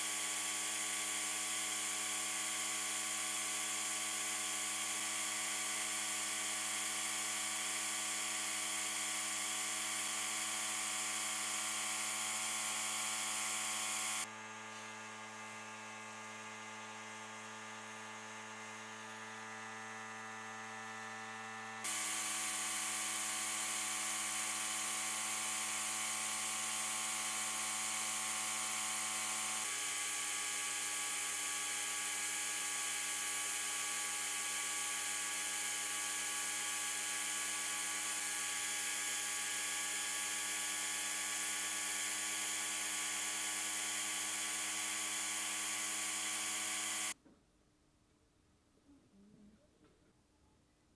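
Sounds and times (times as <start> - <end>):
sandblast gun hissing: 21.8 - 28.8, 29.5 - 47.2.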